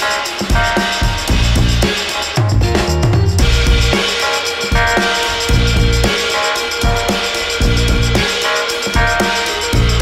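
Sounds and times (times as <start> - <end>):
bass: 0.5 - 10.0.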